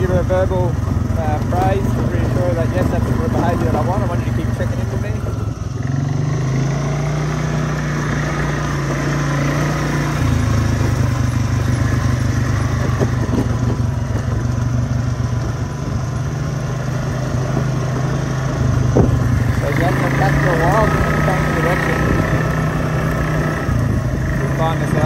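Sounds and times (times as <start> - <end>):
quad bike engine running: 0.0 - 25.0.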